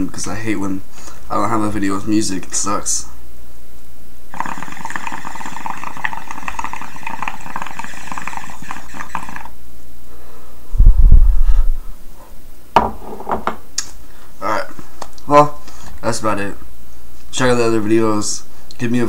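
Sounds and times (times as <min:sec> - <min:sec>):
water bubbling in glass pipe: 0:04.3 - 0:09.5
breath gusts on microphone: 0:10.1 - 0:12.1.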